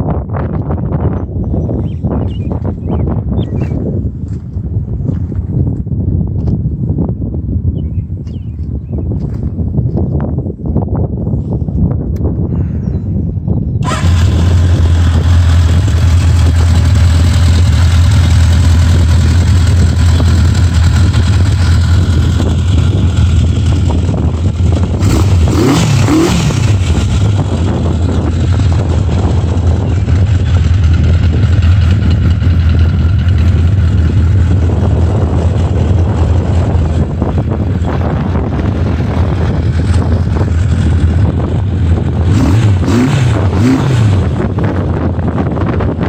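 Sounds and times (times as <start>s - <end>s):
motorcycle engine revving: 13.8s - 46.0s
motorcycle engine starting and idling: 13.8s - 46.0s.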